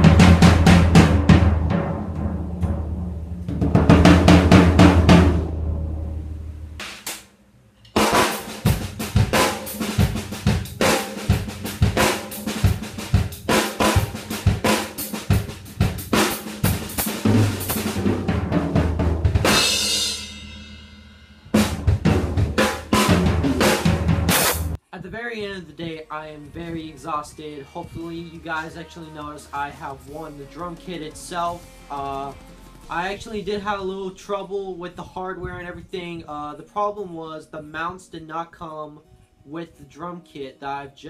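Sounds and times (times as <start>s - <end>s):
drum kit played hard: 0.0s - 7.2s, 7.9s - 24.8s, 28.4s - 33.7s
cymbal crash: 0.0s - 7.3s, 19.4s - 24.8s.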